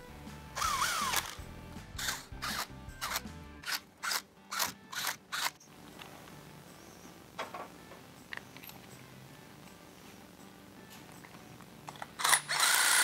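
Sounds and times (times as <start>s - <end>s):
cordless drill whining: 0.6s - 1.4s, 12.2s - 13.0s
drill short sharp bursts: 0.6s - 1.4s, 12.2s - 13.0s.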